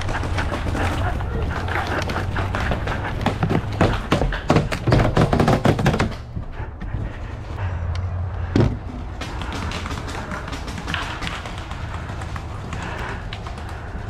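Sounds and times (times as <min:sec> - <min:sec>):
footsteps on wooden stairs: 0:00.0 - 0:07.5.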